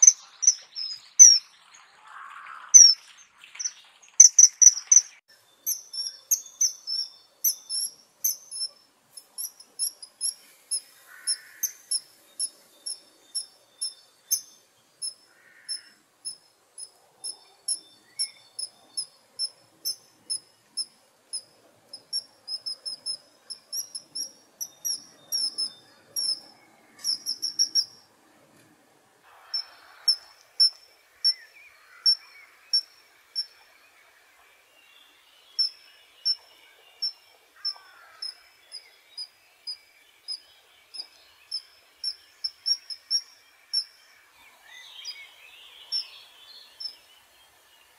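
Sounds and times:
kingfisher calling shrill notes: 0.0s - 1.4s, 2.8s - 3.0s, 3.6s - 8.8s, 18.2s - 27.9s.

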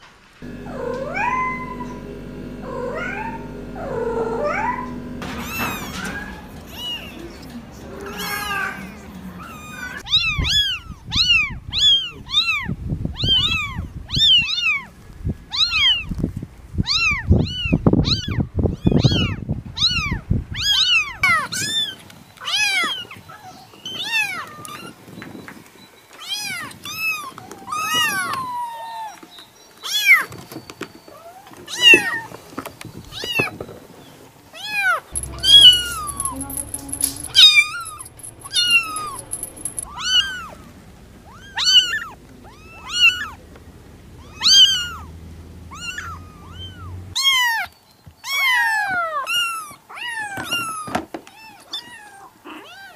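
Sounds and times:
low rumbling and bumping: 35.2s - 44.4s
kittens meowing: 44.2s - 45.1s.

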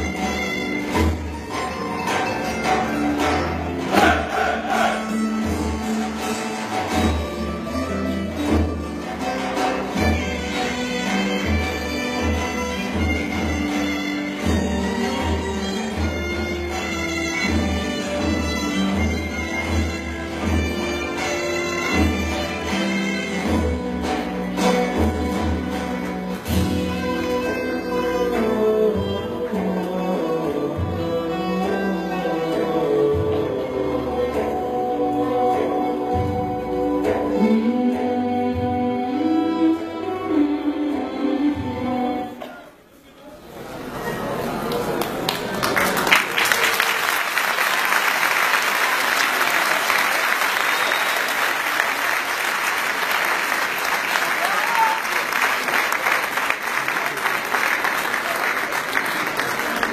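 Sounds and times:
folk dance music: 0.0s - 59.9s
audience applauding: 44.5s - 59.9s.

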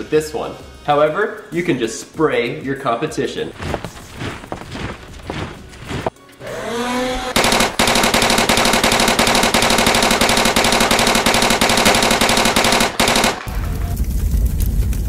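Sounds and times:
dart blaster motor whining: 6.4s - 13.6s
dart blaster firing rapidly: 7.3s - 13.7s
low rumble: 13.5s - 15.0s.

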